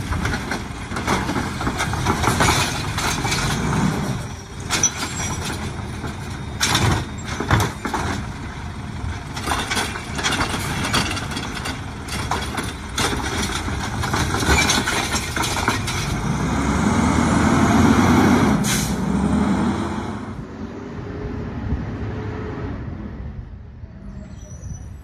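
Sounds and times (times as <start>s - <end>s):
cart clanking: 0.0s - 16.2s
truck engine revving: 15.8s - 23.0s
air brake hiss: 18.6s - 19.0s.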